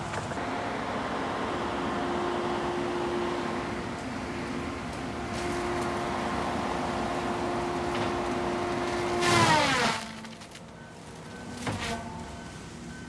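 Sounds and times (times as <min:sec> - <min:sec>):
heavy machine engine running: 0:00.0 - 0:13.0
tree cracking and crashing: 0:07.8 - 0:11.9.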